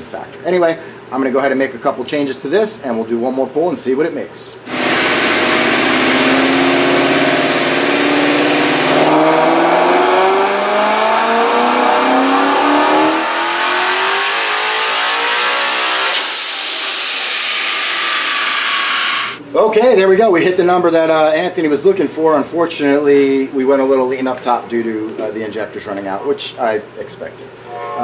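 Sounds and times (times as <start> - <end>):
engine revving at full throttle: 4.7 - 19.4
supercharger whine: 4.7 - 19.4.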